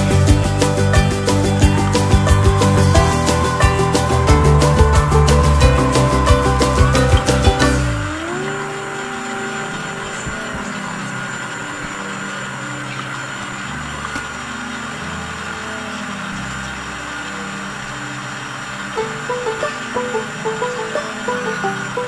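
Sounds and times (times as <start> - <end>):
stand mixer motor running: 1.0 - 13.7.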